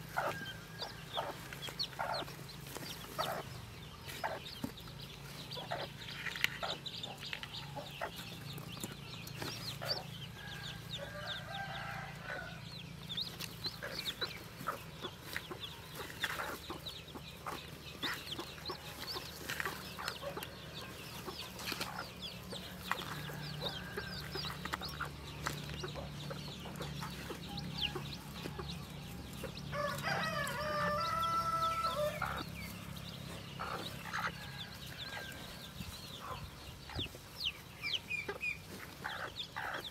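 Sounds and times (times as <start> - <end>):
chicks peeping: 0.0 - 39.9
hen clucking: 0.0 - 39.9
rooster crowing: 10.4 - 12.6, 29.7 - 32.2.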